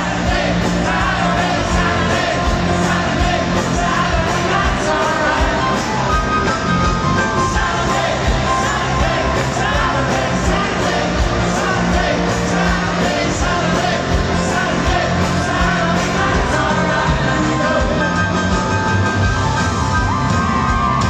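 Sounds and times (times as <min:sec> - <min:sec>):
live rock band over pa: 0:00.0 - 0:21.0.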